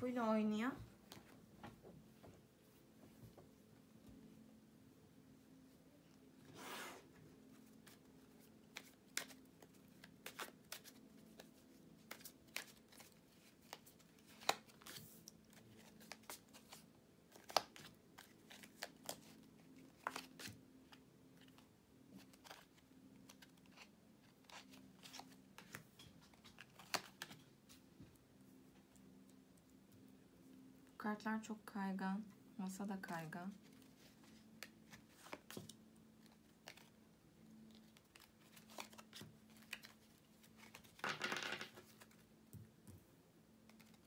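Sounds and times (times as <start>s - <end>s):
faint steady hum: 0.0s - 41.0s
cards shuffling on a table: 7.6s - 27.8s, 33.6s - 36.9s, 37.7s - 42.6s, 43.7s - 44.0s.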